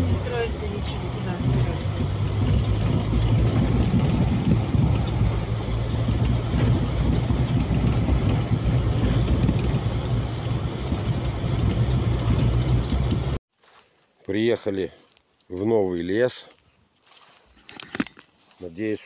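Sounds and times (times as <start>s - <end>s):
car engine hum: 0.0s - 13.4s
tyres rumbling on dirt road: 0.0s - 13.4s.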